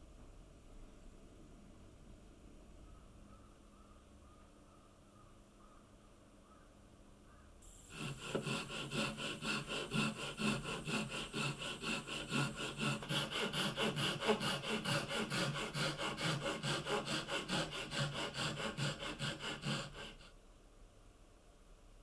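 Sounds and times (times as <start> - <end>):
hand saw cutting wood: 7.9 - 20.3.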